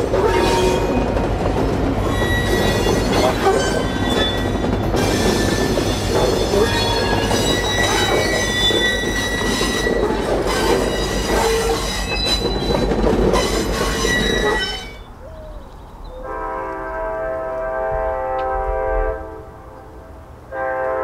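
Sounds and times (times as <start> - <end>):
train rumbling by: 0.0 - 21.0
wheel squeal on rails: 2.0 - 15.2
locomotive horn chord: 16.2 - 21.0.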